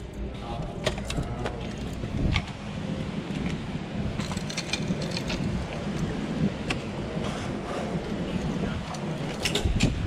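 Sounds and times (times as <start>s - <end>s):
microphone handling and wind noise: 0.6s - 10.0s
fishing gear clicking and rattling: 4.2s - 6.1s.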